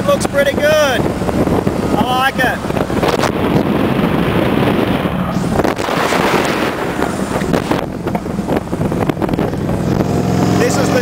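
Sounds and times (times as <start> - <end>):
motorcycle engine running: 0.0 - 11.0
wind buffeting microphone: 0.0 - 11.0.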